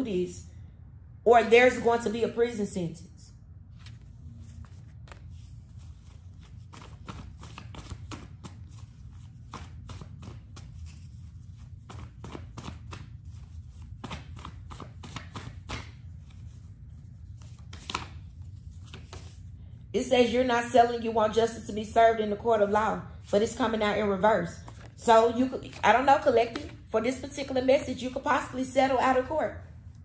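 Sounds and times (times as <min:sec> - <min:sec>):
low steady hum: 0:00.0 - 0:30.0
cards being shuffled: 0:03.7 - 0:19.5.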